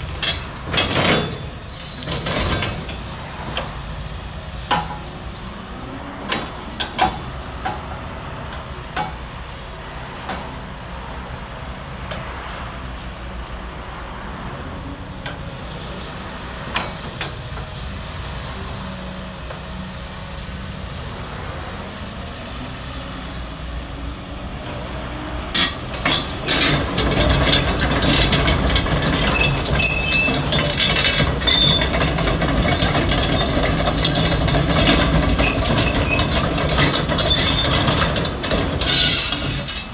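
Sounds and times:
steel tracks clanking and squeaking: 0:00.0 - 0:10.6, 0:14.8 - 0:20.0, 0:20.6 - 0:39.9
excavator diesel engine running: 0:00.0 - 0:39.9
machine clicks and knocks: 0:25.6 - 0:29.8, 0:30.4 - 0:39.8.

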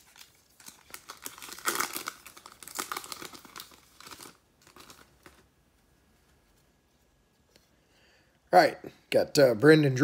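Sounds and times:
foil wrapper tearing and crinkling: 0:00.0 - 0:05.5.

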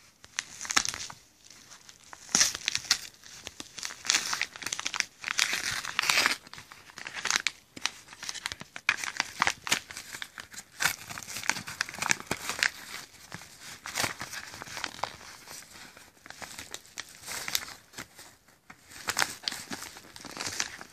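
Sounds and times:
paper envelope tearing: 0:02.0 - 0:13.0.

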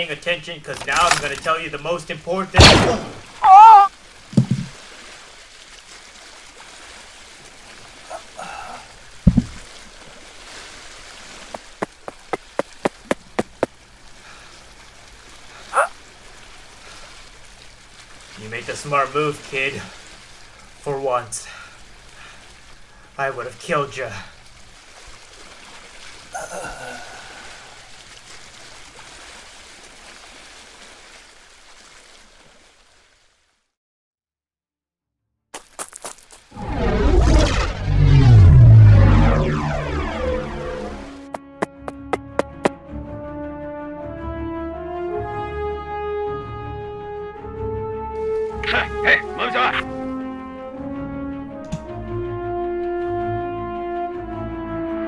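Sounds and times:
rushing water: 0:00.0 - 0:33.8, 0:35.9 - 0:42.8, 0:48.0 - 0:54.3
heavy low thump: 0:02.6 - 0:03.3, 0:04.3 - 0:04.8, 0:09.2 - 0:09.7, 0:41.3 - 0:42.8.

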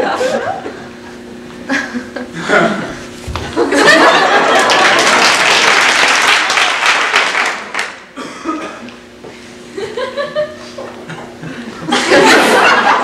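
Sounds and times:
audience laughter: 0:00.0 - 0:05.9, 0:09.7 - 0:13.0
audience applauding: 0:03.6 - 0:08.1.

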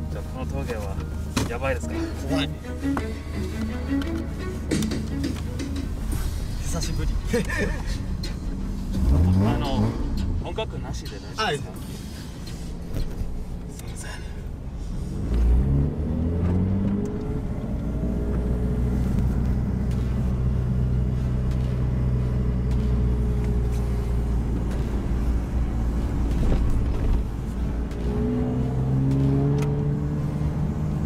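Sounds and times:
car engine droning from inside: 0:11.8 - 0:31.0.

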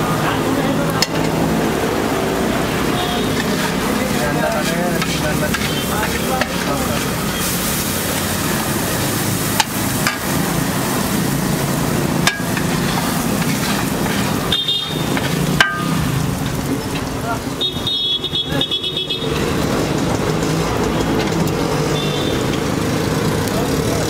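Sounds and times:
eggs sizzling on a griddle: 0:00.1 - 0:24.0
spatula clacking on griddle: 0:00.9 - 0:01.5, 0:02.8 - 0:17.1
metal spatula scraping: 0:02.7 - 0:16.6.

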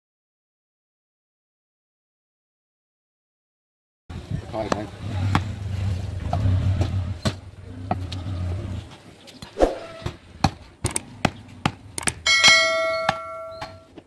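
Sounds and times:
low engine rumble: 0:04.1 - 0:09.3
bright ringing tone: 0:12.3 - 0:13.9.

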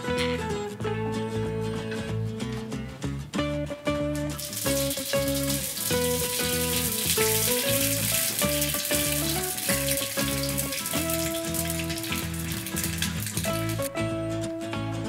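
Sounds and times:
guitar music: 0:00.0 - 0:15.0
rice paper sizzling in a pan: 0:04.4 - 0:13.9.

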